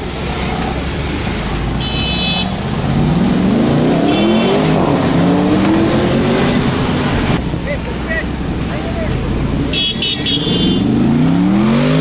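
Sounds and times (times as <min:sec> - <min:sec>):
car engine accelerating: 0:02.6 - 0:09.7.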